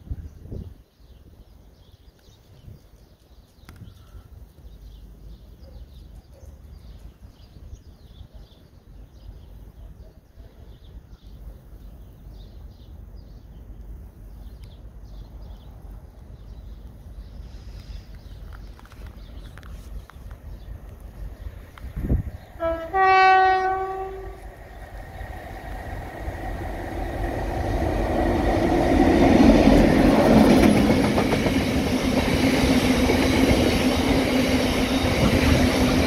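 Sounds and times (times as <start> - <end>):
small birds chirping: 0.2 - 23.0.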